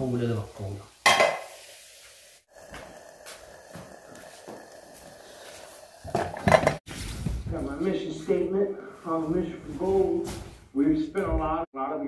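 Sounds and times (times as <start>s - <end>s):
frying pan and plate clanking: 1.0s - 1.7s, 6.0s - 6.8s.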